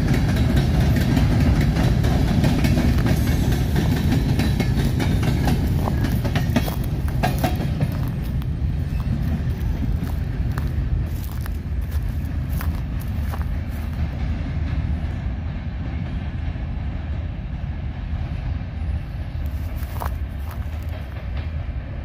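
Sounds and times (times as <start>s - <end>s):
wheel clacks: 0.0s - 10.7s
train wheels rumbling on rails: 0.0s - 22.0s.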